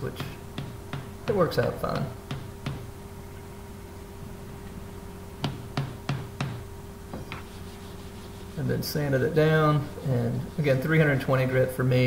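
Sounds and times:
steady low hum: 0:00.0 - 0:12.0
hammer knocking on metal: 0:00.2 - 0:01.2, 0:01.8 - 0:02.9, 0:05.4 - 0:06.6.

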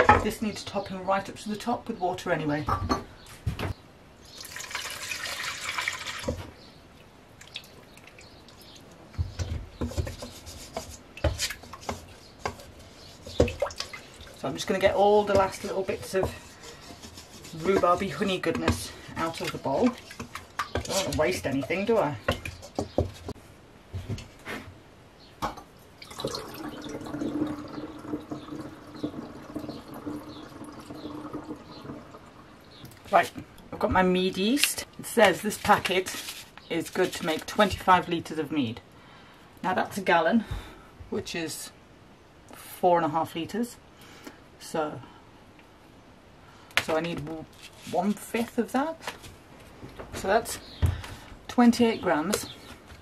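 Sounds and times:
liquid trickling into glass jug: 0:04.3 - 0:06.4, 0:26.0 - 0:32.8
water pouring into metal bowl: 0:04.4 - 0:06.3, 0:26.0 - 0:32.4
wooden spatula scraping bowl: 0:09.4 - 0:23.4.

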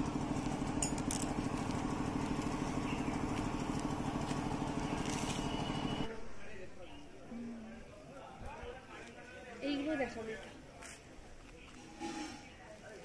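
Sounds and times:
small engine running steadily: 0:00.0 - 0:06.1.

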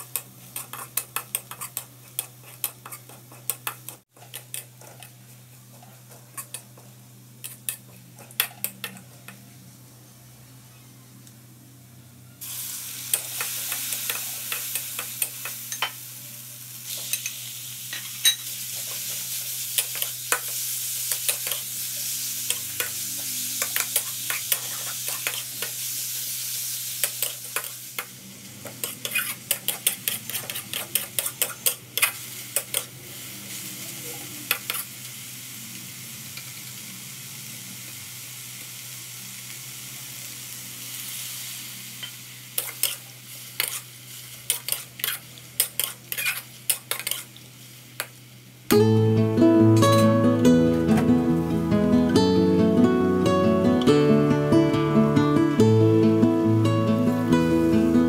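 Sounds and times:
meat sizzling in a wok: 0:00.0 - 0:09.5, 0:12.4 - 0:48.8.

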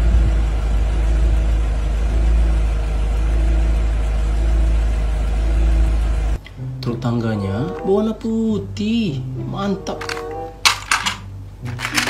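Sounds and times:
truck engine running: 0:00.0 - 0:06.5, 0:09.9 - 0:12.0.

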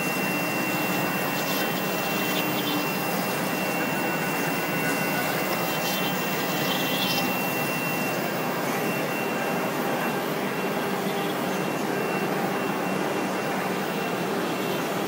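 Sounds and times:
high spindle whine: 0:00.0 - 0:15.0
machine hiss: 0:00.3 - 0:08.8.

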